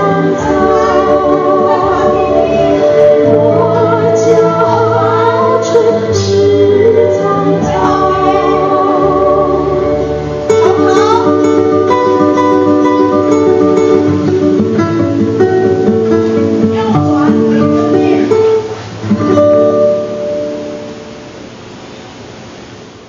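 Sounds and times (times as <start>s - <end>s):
two women singing folk-pop: 0.0s - 13.2s
guitar and bass accompaniment: 0.0s - 21.6s.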